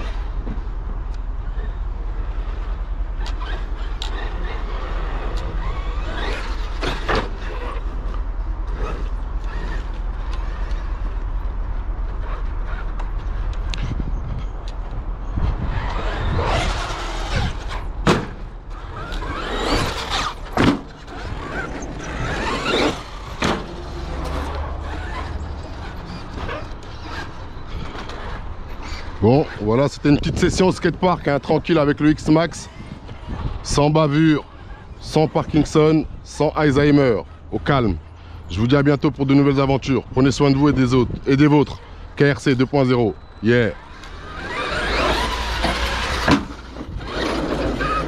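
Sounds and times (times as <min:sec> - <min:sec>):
electric motor whining: 0:02.4 - 0:14.0, 0:15.4 - 0:29.2, 0:43.4 - 0:48.0
tyres squealing: 0:15.6 - 0:30.0, 0:42.2 - 0:48.0.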